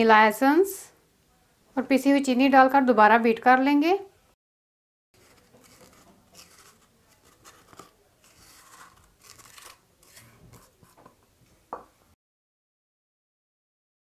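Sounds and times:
spatula scraping glass bowl: 0:05.2 - 0:11.1.

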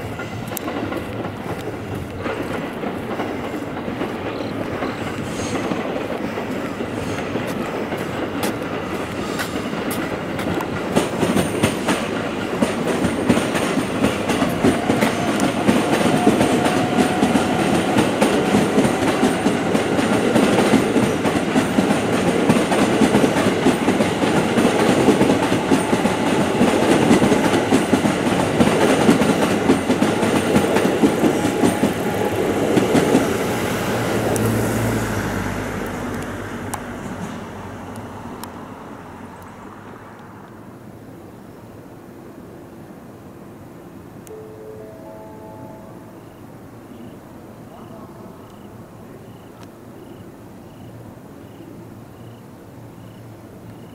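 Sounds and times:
wheels clacking over rail joints: 0:00.0 - 0:38.6
train passing: 0:00.0 - 0:53.9.

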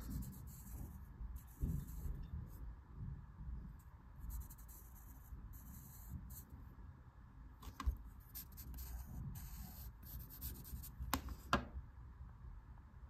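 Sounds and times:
pencil scratching on paper: 0:00.0 - 0:02.2, 0:04.3 - 0:06.5, 0:08.3 - 0:11.4.

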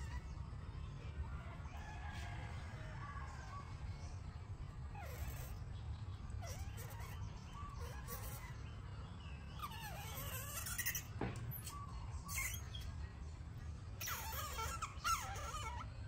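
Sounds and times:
monkeys whimpering and squealing: 0:00.0 - 0:00.6, 0:04.9 - 0:08.8, 0:09.5 - 0:12.9, 0:14.0 - 0:16.0.

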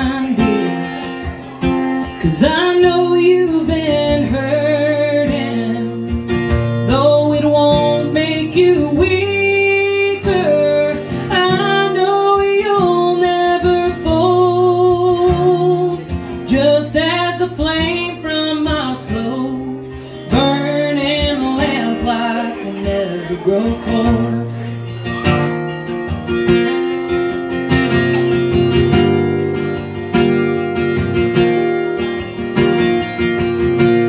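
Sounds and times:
woman singing with vibrato: 0:00.0 - 0:01.0, 0:02.2 - 0:06.2, 0:06.8 - 0:24.5
acoustic guitar: 0:00.0 - 0:34.0.

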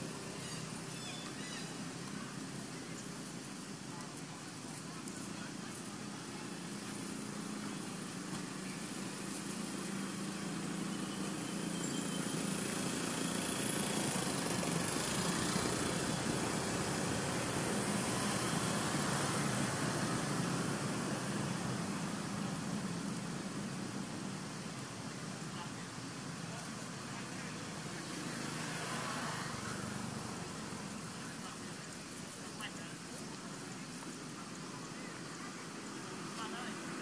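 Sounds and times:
outdoor noise: 0:00.0 - 0:37.0
vehicle engine running: 0:00.0 - 0:37.0.

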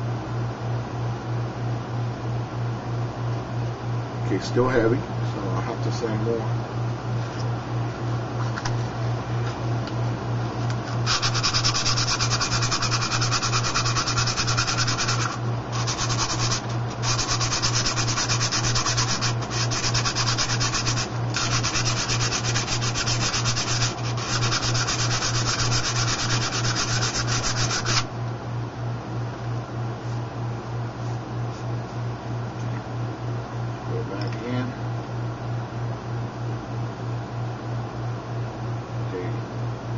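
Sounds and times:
sandpaper scraping plastic: 0:11.0 - 0:28.1.

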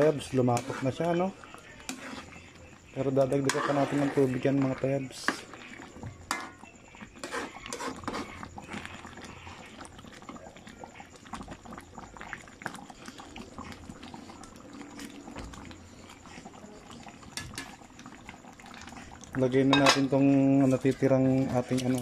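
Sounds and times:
broth bubbling in a pan: 0:00.0 - 0:22.0
ladle scraping a pan: 0:00.2 - 0:09.6.

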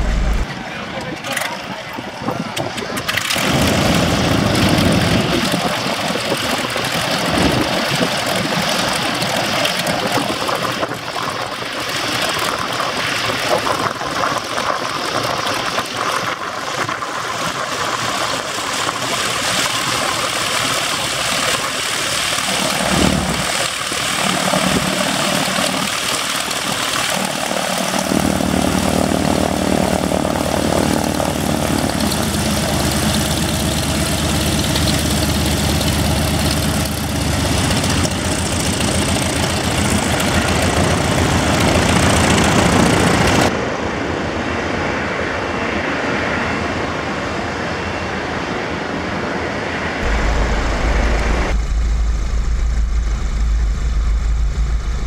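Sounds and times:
steady rushing noise: 0:00.0 - 0:55.0
radial aircraft engine idling: 0:14.8 - 0:43.5.

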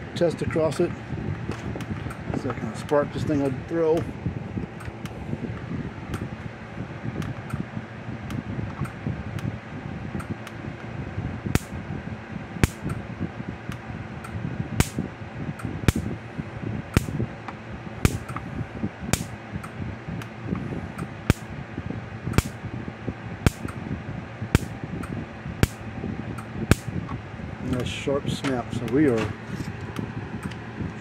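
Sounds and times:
electric fence charger sparking snaps: 0:11.5 - 0:11.8, 0:12.6 - 0:13.0, 0:13.7 - 0:15.0, 0:15.6 - 0:16.1, 0:16.9 - 0:17.2, 0:18.0 - 0:18.4, 0:19.1 - 0:20.3, 0:21.0 - 0:21.5, 0:22.3 - 0:22.6, 0:23.4 - 0:23.8, 0:24.5 - 0:25.8, 0:26.4 - 0:27.0.

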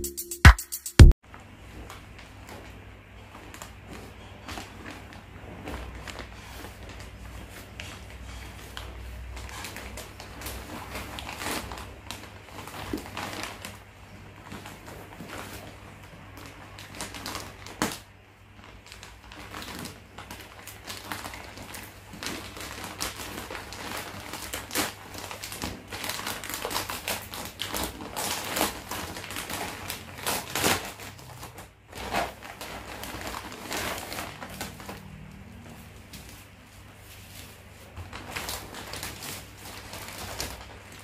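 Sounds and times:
plastic-wrapped item rustling: 0:01.5 - 0:41.0
plastic mailer crinkling: 0:09.6 - 0:41.0.

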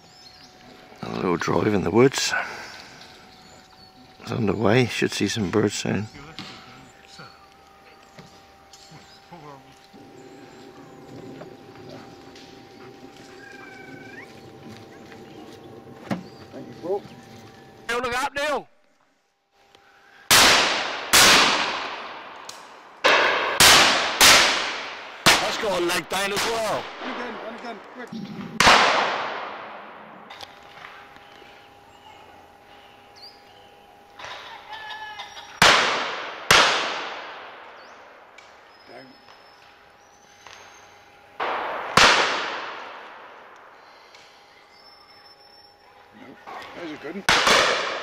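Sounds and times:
shotgun shots with echo: 0:20.3 - 0:22.4, 0:23.0 - 0:27.6, 0:28.6 - 0:30.3, 0:35.6 - 0:37.6, 0:41.4 - 0:43.4, 0:47.2 - 0:48.0.

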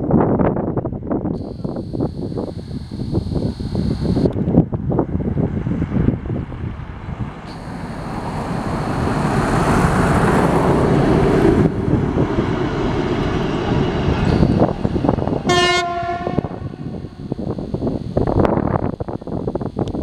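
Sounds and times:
diesel locomotive passing: 0:04.6 - 0:17.3
locomotive horn: 0:15.4 - 0:18.0.

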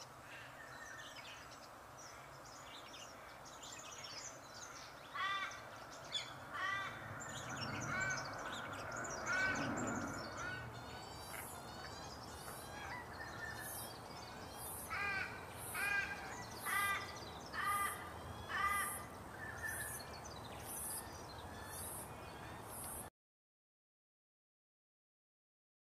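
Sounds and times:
harsh rasping bird calls: 0:05.1 - 0:23.1.

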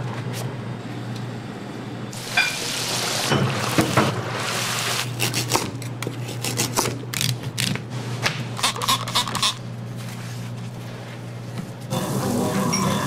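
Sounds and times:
oil bubbling in deep fryer: 0:02.2 - 0:05.0.

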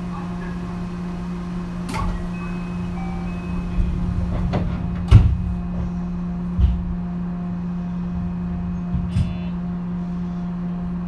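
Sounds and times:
electric train humming: 0:00.0 - 0:11.0
sharp knocks and clunks: 0:04.3 - 0:07.0, 0:08.8 - 0:09.5.

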